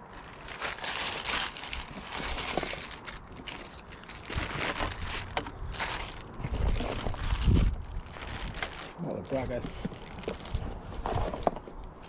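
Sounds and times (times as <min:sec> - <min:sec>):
plastic bags crinkling: 0:00.0 - 0:12.0.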